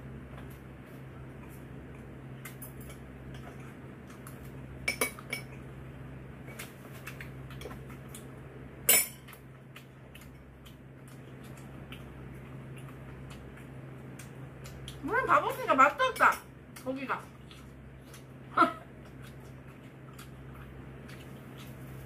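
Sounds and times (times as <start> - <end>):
steady low hum: 0.0 - 22.0
cutlery clinking against dishes: 4.9 - 5.5, 8.9 - 9.4.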